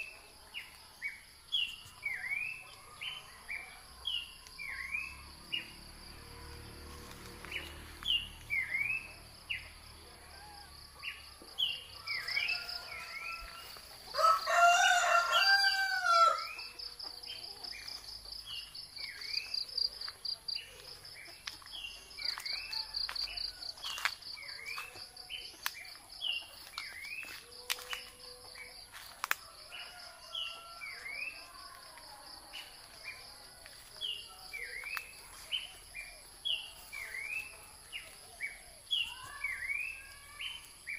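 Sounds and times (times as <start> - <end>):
rooster crowing: 10.1 - 16.8, 22.4 - 24.1, 29.4 - 31.5.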